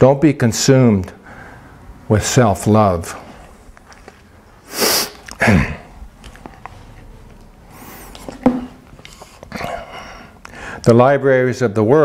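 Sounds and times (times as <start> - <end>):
person sneezing: 4.7 - 6.0.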